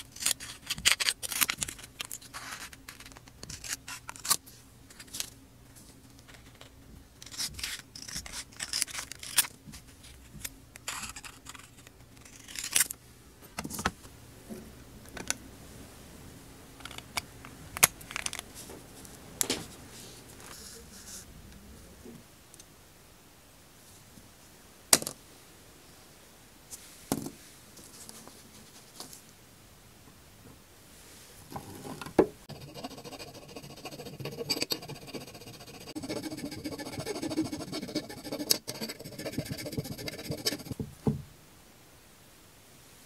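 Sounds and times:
hand file rasping on metal: 0:32.5 - 0:40.8
knock: 0:40.8 - 0:41.3.

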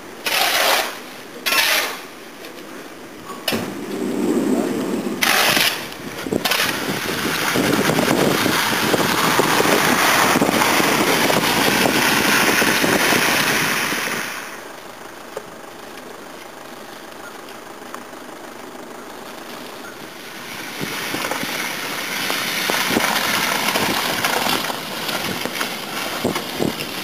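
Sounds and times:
car tyres hissing through slush: 0:00.1 - 0:27.0
snow shovel scraping pavement: 0:00.2 - 0:02.6, 0:03.4 - 0:14.6, 0:19.4 - 0:27.0
car engine: 0:00.9 - 0:27.0.

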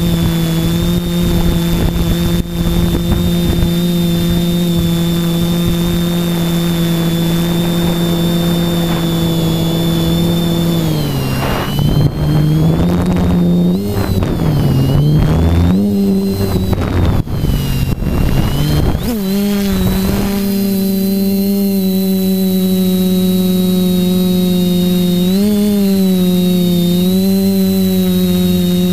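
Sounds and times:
quadcopter motors buzzing: 0:00.0 - 0:28.9
rough wind noise: 0:00.0 - 0:28.9.

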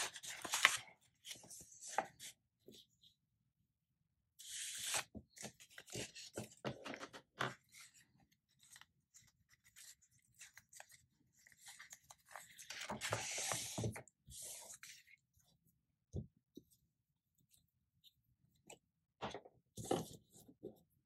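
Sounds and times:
paper rustling and crinkling: 0:00.0 - 0:02.3, 0:04.6 - 0:15.0.

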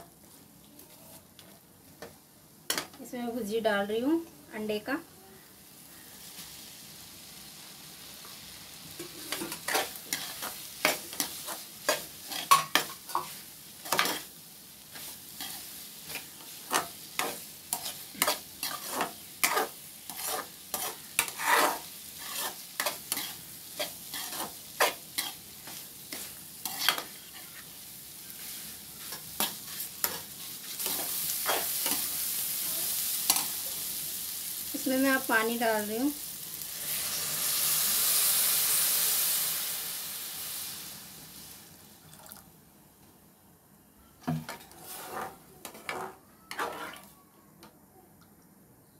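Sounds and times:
food sizzling: 0:00.0 - 0:42.6, 0:44.5 - 0:47.1
spatula scraping a pan: 0:09.0 - 0:14.3, 0:14.9 - 0:32.2, 0:44.5 - 0:47.2.

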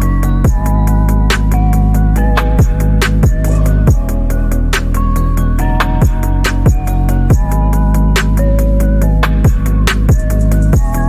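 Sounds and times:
bass and synth notes: 0:00.0 - 0:11.0
kick drum: 0:00.4 - 0:00.8, 0:02.5 - 0:04.2, 0:06.0 - 0:07.6, 0:09.4 - 0:11.0.

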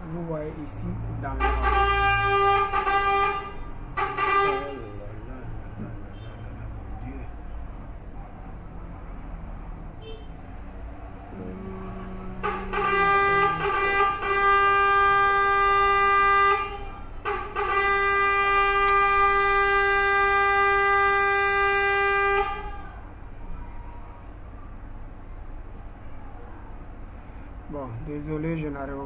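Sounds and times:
vehicle horn blasts: 0:01.3 - 0:05.1, 0:10.0 - 0:10.4, 0:11.3 - 0:23.0.

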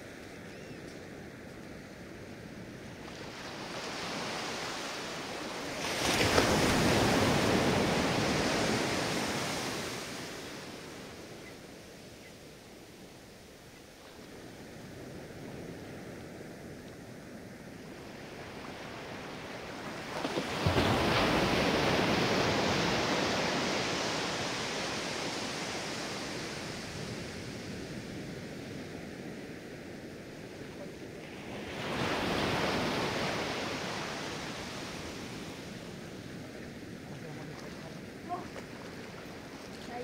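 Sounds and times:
sea waves breaking on sand: 0:03.0 - 0:11.4, 0:18.1 - 0:40.0.

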